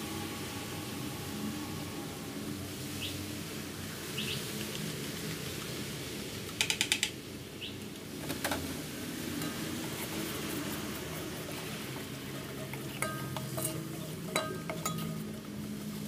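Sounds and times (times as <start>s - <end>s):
sharp clicks: 6.5s - 7.2s.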